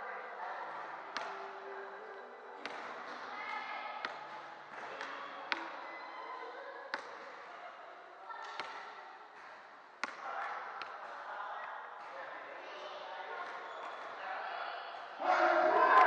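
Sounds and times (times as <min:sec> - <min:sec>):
murmur of players' voices: 0:00.0 - 0:16.0
basketball bouncing in hall: 0:02.6 - 0:06.1, 0:08.3 - 0:11.2.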